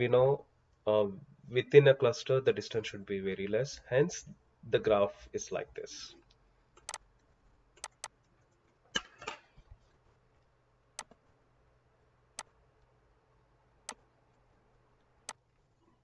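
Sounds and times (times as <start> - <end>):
faint low hum: 0.0 - 16.0
computer mouse clicks: 6.8 - 7.1, 7.8 - 8.5, 11.0 - 11.2.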